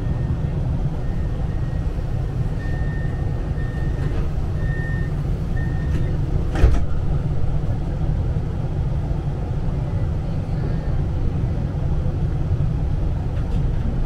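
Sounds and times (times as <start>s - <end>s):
tram low rumble: 0.0s - 14.0s
tram doors hissing and thudding shut: 2.4s - 8.1s.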